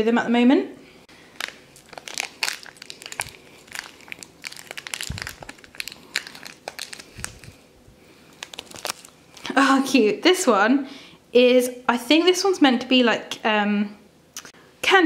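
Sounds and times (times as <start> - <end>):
plastic wrapper crinkling: 1.2 - 9.5.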